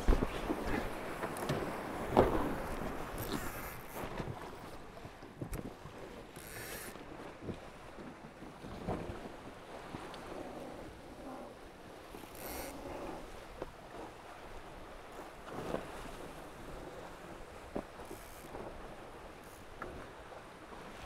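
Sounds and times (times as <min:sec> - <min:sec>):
wind on microphone: 0:00.0 - 0:04.5
water rushing along hulls: 0:00.0 - 0:21.0.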